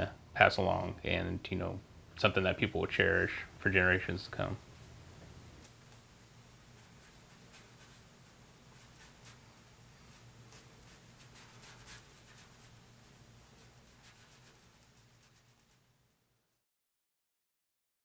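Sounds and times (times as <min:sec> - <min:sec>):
low steady hum: 0:00.0 - 0:16.6
paintbrush scratching on canvas: 0:06.7 - 0:15.9.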